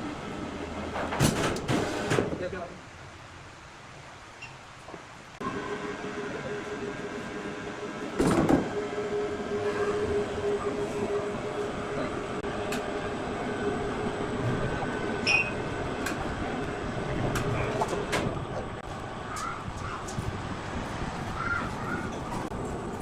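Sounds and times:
sawmill mechanical hum: 5.0s - 23.0s.

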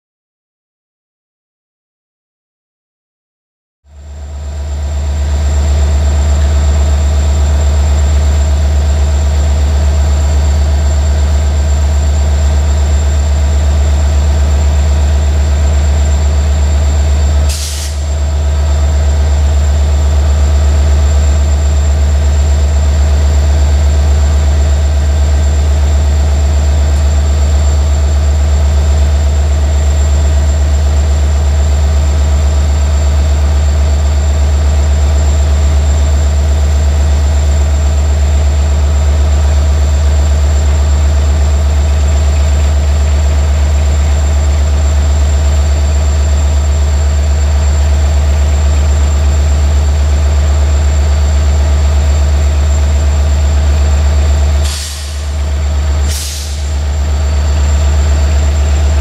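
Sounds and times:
diesel locomotive engine drone: 3.9s - 59.0s
short hiss: 17.5s - 18.0s, 54.6s - 55.3s, 56.1s - 56.7s.

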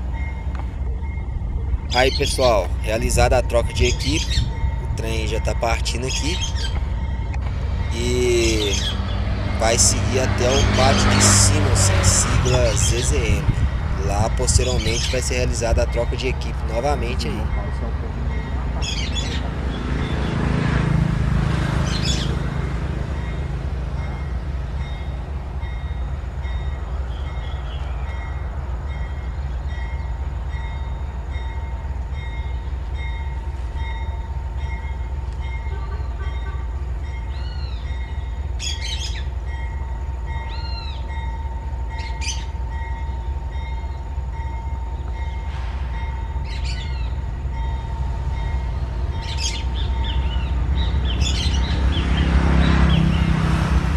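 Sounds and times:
freight train rumbling: 0.0s - 53.9s
birds chirping: 1.9s - 20.4s, 41.9s - 45.4s, 46.1s - 53.3s.

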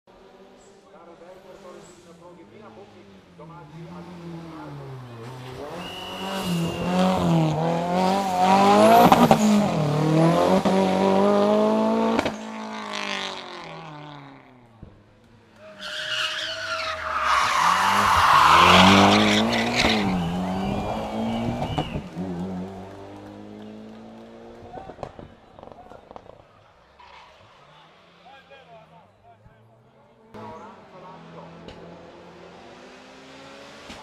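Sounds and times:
race car engine revving: 2.7s - 14.4s, 16.9s - 26.4s, 30.2s - 34.0s.

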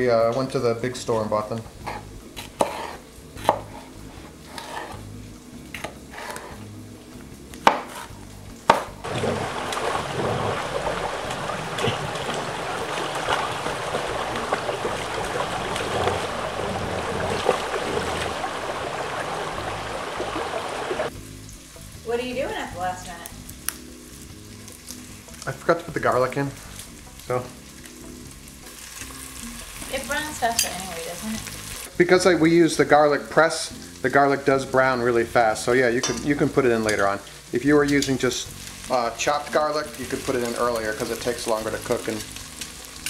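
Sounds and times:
knife cutting on plastic board: 1.9s - 3.9s.

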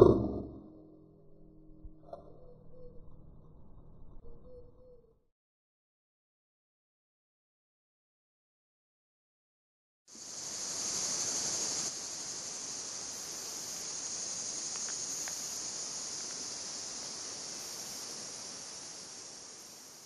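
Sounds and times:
insects chorus: 10.1s - 20.0s.

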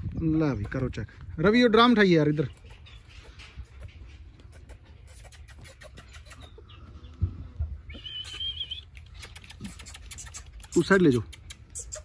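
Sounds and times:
high wavering animal call: 7.9s - 8.9s.

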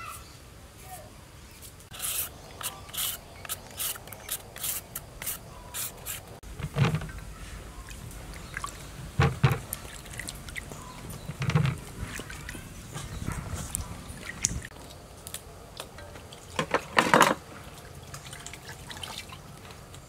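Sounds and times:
peeler scraping cucumber skin: 1.9s - 6.4s.

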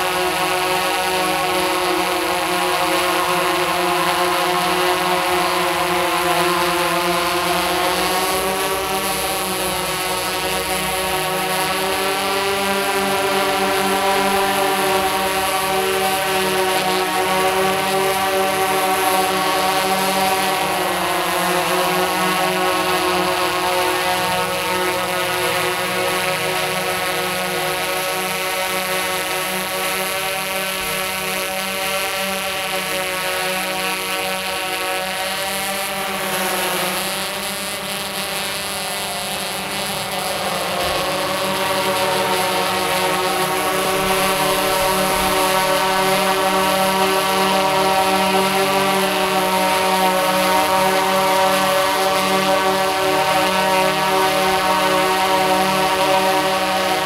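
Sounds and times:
drone motors buzzing in flight: 0.0s - 57.0s.

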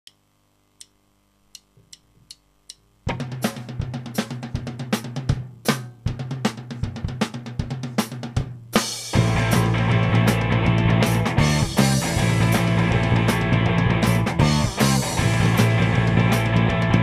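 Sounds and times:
faint clicks: 0.8s - 2.8s
rock drum kit beat: 3.0s - 17.0s
rock band playing: 8.8s - 17.0s.

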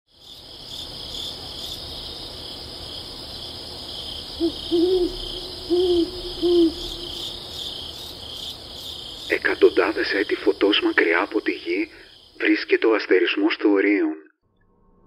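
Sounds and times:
crickets chirring: 0.1s - 13.6s
owl hooting: 4.4s - 8.1s.

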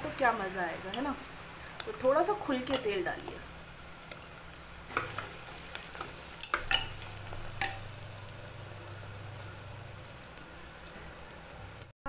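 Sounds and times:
onions sizzling in oil: 0.0s - 11.9s
ladle clinking against pot: 6.4s - 7.0s.

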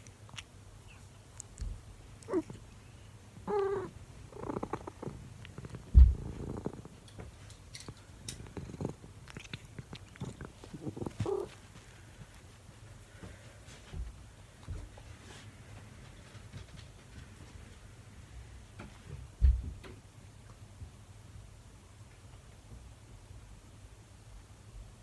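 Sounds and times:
cat purring: 0.0s - 13.1s
loud low thump: 5.9s - 6.4s.

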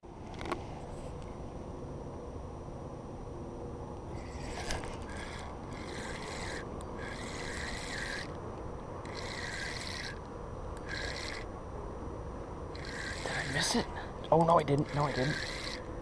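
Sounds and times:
fishing reel cranking whir: 4.1s - 8.4s, 9.0s - 11.5s, 12.7s - 13.9s, 14.6s - 15.9s.

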